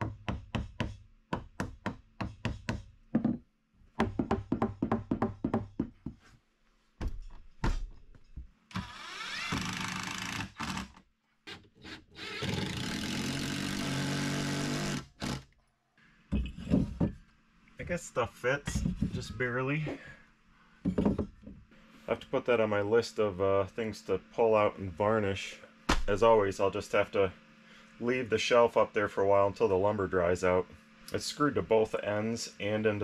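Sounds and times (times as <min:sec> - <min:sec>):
hammer tapping on wood: 0:04.0 - 0:06.2
cordless drill whining: 0:08.7 - 0:15.5.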